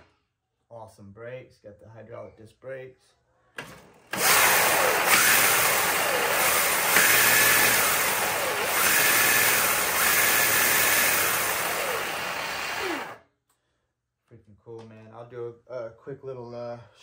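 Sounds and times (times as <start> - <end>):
electric motor whine: 4.2 - 13.2.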